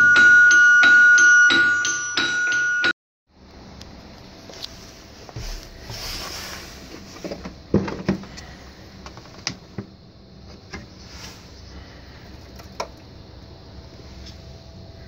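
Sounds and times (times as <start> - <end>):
faint steady hum: 3.3 - 15.0.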